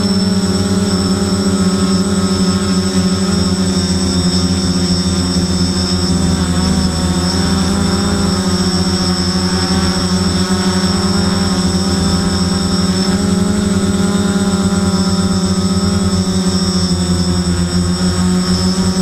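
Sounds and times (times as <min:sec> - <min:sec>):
drone propellers buzzing: 0:00.0 - 0:19.0.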